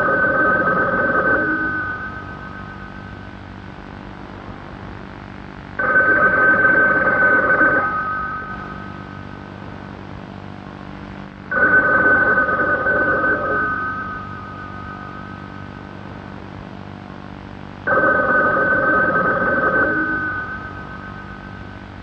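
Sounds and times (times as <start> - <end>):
rotary telephone ringing: 0.0 - 2.8, 5.8 - 9.0, 11.5 - 15.7, 17.9 - 21.7.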